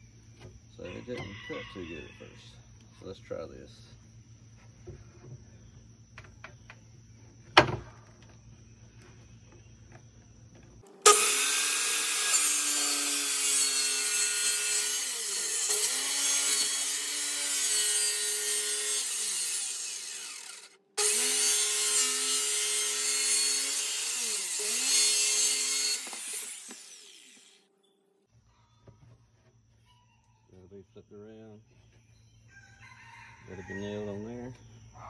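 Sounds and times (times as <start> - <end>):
circular saw cutting wood: 10.8 - 27.7.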